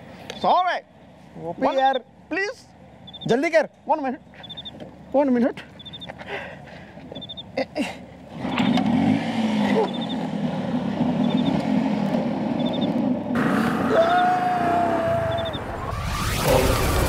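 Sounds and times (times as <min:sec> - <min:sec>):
scooter engine running: 0:08.2 - 0:13.3.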